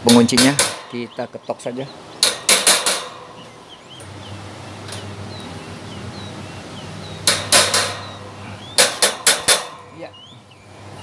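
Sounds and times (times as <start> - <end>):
fan grille clips knocking: 0.0 - 1.2, 2.2 - 4.2, 4.8 - 5.1, 7.2 - 10.0.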